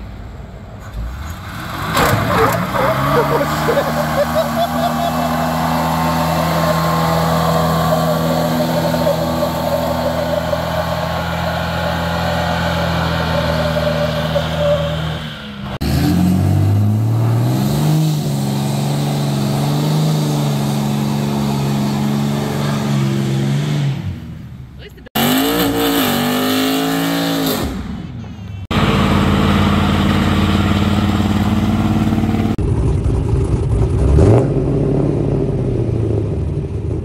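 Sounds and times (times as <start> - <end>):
diesel pickup engine revving: 0.0 - 37.0
car engine revving in burnout: 1.0 - 24.2, 25.2 - 27.9.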